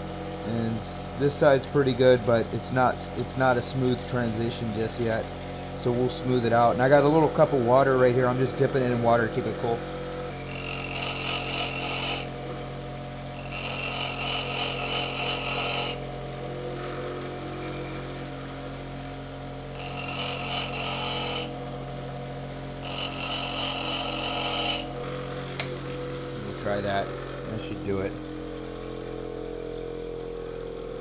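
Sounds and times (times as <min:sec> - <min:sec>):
bench grinder motor running: 0:00.0 - 0:31.0
drill bit grinding on stone wheel: 0:05.9 - 0:12.6, 0:13.3 - 0:18.6, 0:19.7 - 0:21.8, 0:22.8 - 0:25.5.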